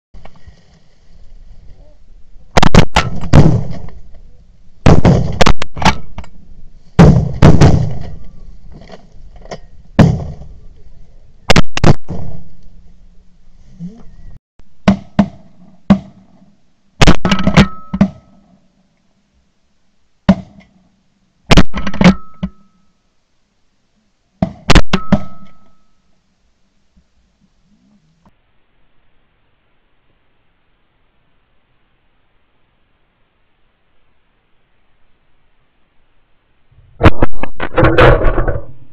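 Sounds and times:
shotgun blasts: 2.6 - 4.0, 4.8 - 6.2, 7.0 - 8.2, 11.5 - 12.5, 17.0 - 18.4, 21.5 - 22.6, 24.4 - 25.7.

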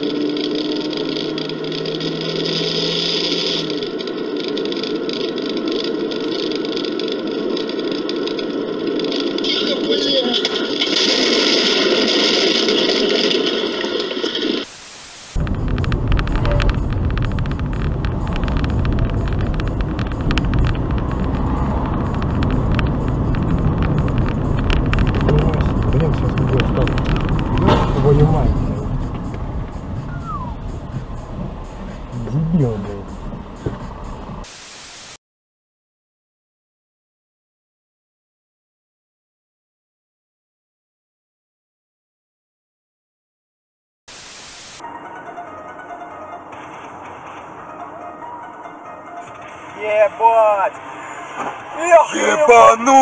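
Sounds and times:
low hum: 0.0 - 34.4
car engine and road noise: 0.0 - 35.1, 44.1 - 53.0
car driving rumble inside cabin: 15.4 - 34.4.

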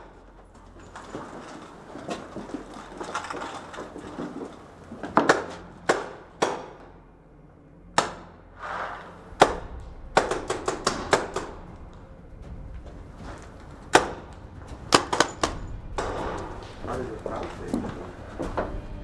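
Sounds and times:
paintball markers firing: 9.4 - 11.6.

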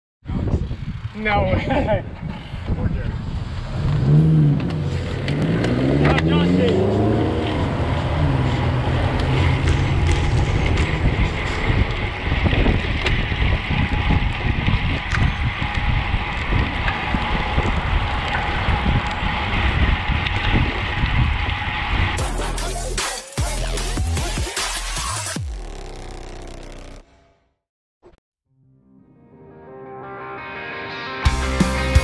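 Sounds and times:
wind buffeting microphone: 0.2 - 6.0, 6.8 - 22.2
road noise: 0.2 - 23.0
electronic music: 22.2 - 27.4, 29.4 - 32.0.

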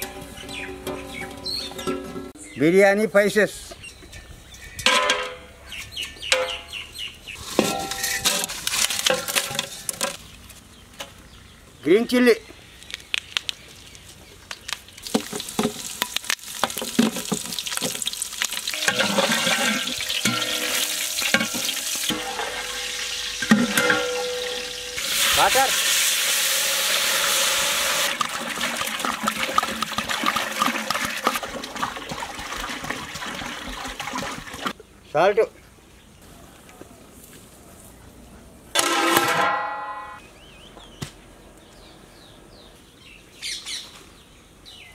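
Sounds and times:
spices clattering in metal pot: 7.4 - 10.2, 15.0 - 25.9
loud hiss: 24.9 - 28.1.

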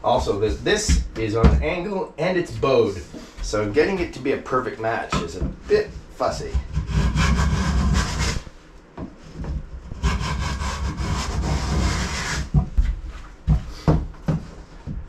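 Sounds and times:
hand tool rasping on wood: 6.5 - 8.4, 9.9 - 12.5.

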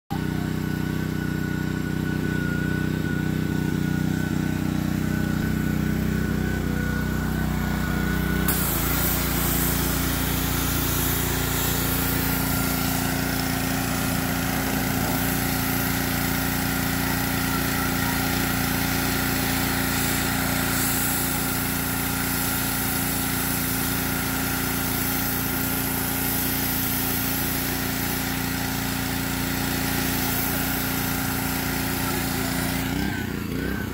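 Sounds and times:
small gasoline engine running: 0.1 - 33.9
spraying water hiss: 8.3 - 33.2.

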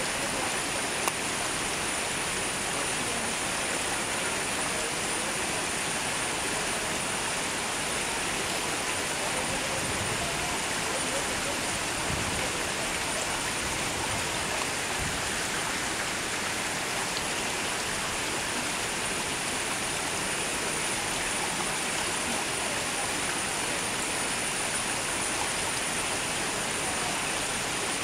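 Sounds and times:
running water: 0.0 - 28.0.

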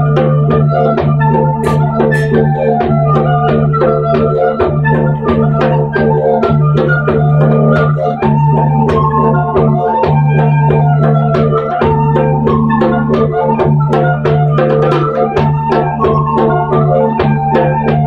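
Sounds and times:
didgeridoo drone: 1.2 - 7.0
bright struck melodic notes: 1.6 - 3.0.

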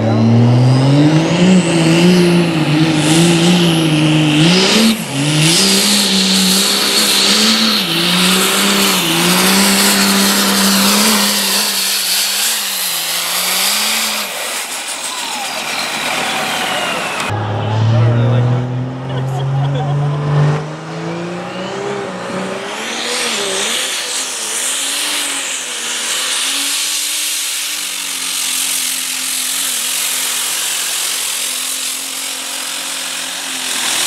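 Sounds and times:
turbo whine: 0.0 - 25.6
diesel engine at high revs: 0.0 - 34.0.

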